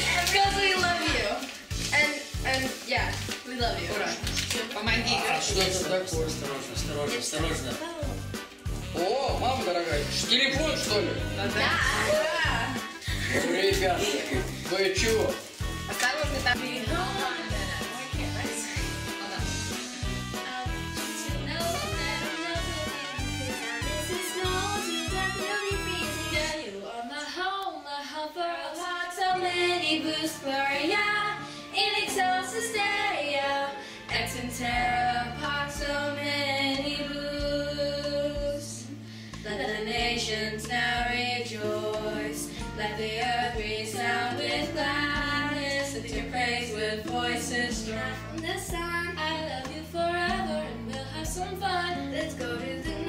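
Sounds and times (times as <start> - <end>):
instrumental accompaniment: 0.0 - 26.8
girls singing: 11.5 - 14.5, 16.5 - 19.5, 20.3 - 53.0.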